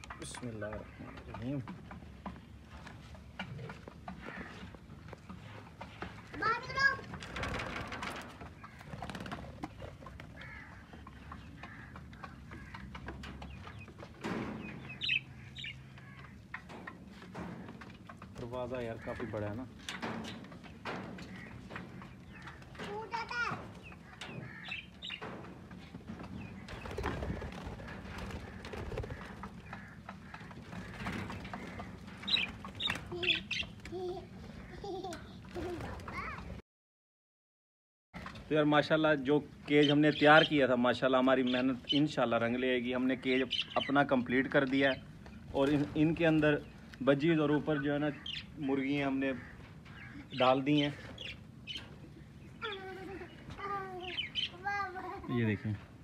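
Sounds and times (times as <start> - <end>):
birds chirping: 0.0 - 36.6, 38.2 - 56.0
bird wings flapping: 7.0 - 10.7, 26.6 - 33.2
budgerigars chirping: 14.6 - 16.2.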